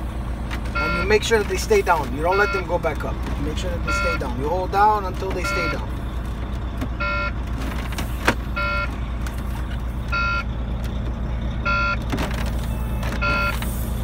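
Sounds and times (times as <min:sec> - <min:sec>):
truck engine idling: 0:00.0 - 0:14.0
warning buzzer beeping: 0:00.8 - 0:01.2, 0:02.2 - 0:02.8, 0:03.8 - 0:04.3, 0:05.4 - 0:05.9, 0:08.5 - 0:08.9, 0:11.6 - 0:12.0.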